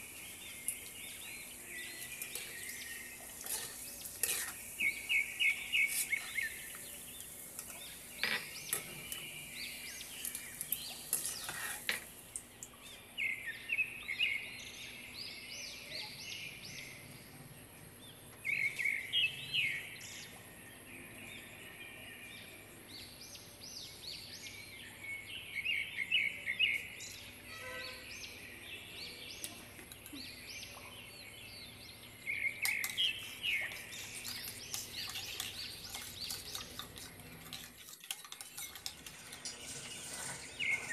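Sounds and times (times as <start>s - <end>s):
nuts deep-frying in oil: 0.0s - 13.6s, 32.2s - 40.9s
small birds chirping: 0.0s - 17.3s, 17.9s - 20.4s, 22.9s - 40.9s
spoon clinking against glass bowl: 32.6s - 40.9s.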